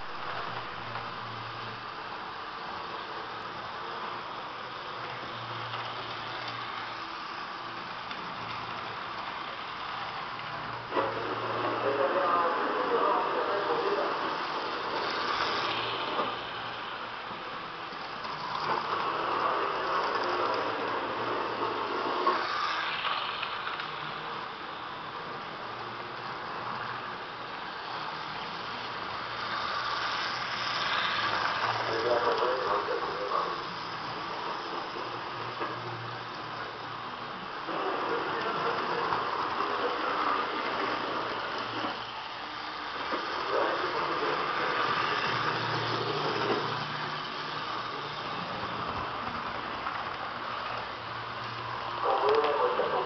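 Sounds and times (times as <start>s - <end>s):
model train motor whirring: 0.4s - 12.2s, 13.5s - 53.0s
wheels rolling over rails: 13.5s - 25.0s, 25.7s - 53.0s.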